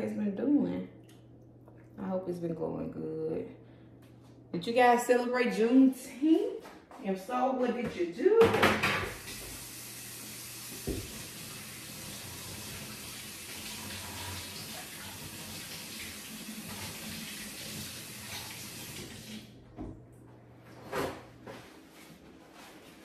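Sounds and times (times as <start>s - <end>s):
knock: 8.4s - 9.1s
kitchen faucet running: 8.6s - 19.6s.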